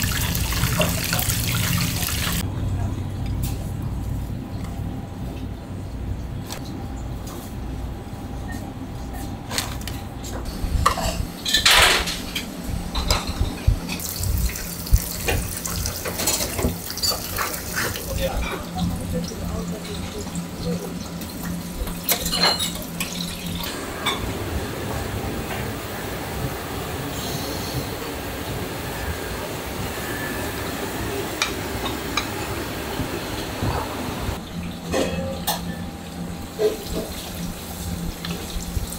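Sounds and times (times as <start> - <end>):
low hum of kitchen equipment: 0.0 - 38.9
bowls and lids clinking on steel: 16.0 - 18.1, 21.8 - 24.3, 34.8 - 35.9.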